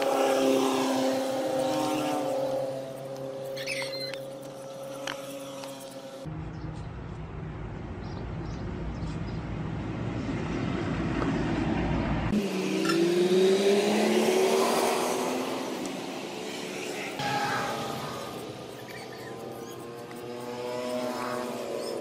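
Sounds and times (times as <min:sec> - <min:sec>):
vehicle engine passing: 0:00.0 - 0:03.6, 0:08.7 - 0:22.0.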